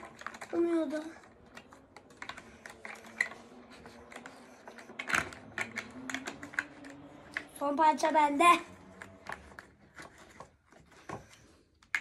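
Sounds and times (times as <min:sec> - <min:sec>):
plastic game pieces clicking: 0:00.0 - 0:07.6.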